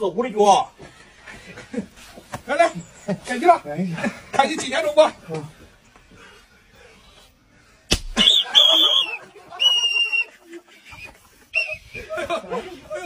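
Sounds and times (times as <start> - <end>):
sharp snap: 7.9 - 8.3
shrill whistle blasts: 8.2 - 10.4, 11.0 - 12.1.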